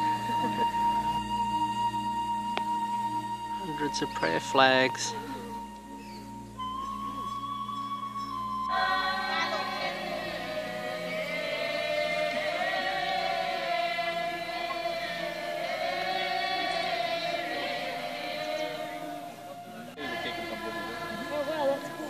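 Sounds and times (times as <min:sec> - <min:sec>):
group chanting in unison: 0:08.7 - 0:22.0.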